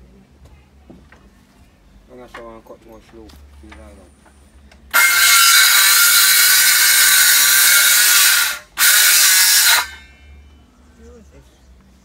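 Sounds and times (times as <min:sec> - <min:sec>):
power saw cutting wood: 0:04.9 - 0:10.2.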